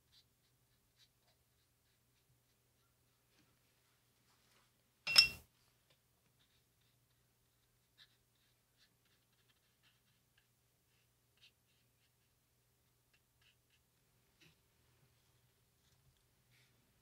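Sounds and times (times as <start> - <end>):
brush ticking on paper: 0.0 - 3.5, 5.9 - 14.6
paintbrush clinking on hard object: 5.1 - 5.5.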